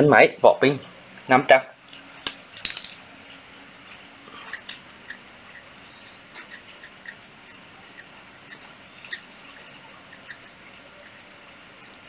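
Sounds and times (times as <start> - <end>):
marker pen scratching on tape: 6.4 - 12.0.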